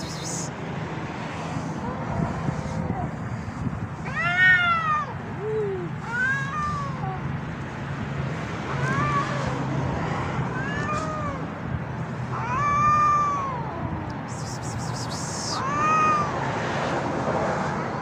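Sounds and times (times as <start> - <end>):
cat meowing: 10.5 - 11.5, 12.3 - 16.3.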